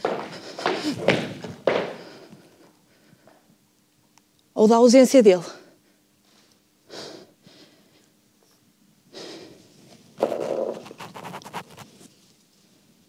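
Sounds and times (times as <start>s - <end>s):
person breathing: 0.1s - 3.5s, 5.5s - 8.2s, 9.1s - 9.8s.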